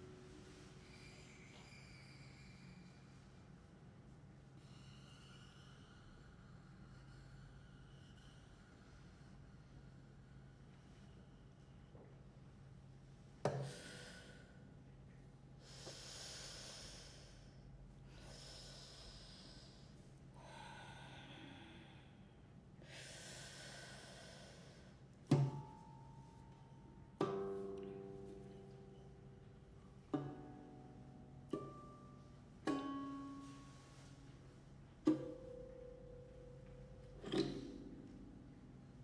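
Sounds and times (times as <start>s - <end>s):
soft breathy hisses: 0.0s - 3.9s, 15.6s - 22.2s, 22.8s - 25.1s
plucked lute notes: 27.2s - 39.0s.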